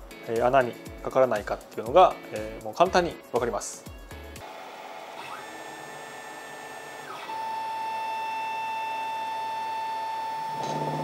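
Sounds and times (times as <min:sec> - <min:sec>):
milling machine spindle whine: 0:04.5 - 0:11.0.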